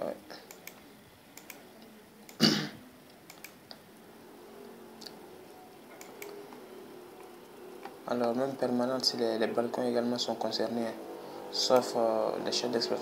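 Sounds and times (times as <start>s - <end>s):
faint computer mouse clicks: 0.5s - 2.4s, 3.3s - 3.8s, 6.0s - 6.6s
person clearing throat: 2.4s - 2.8s.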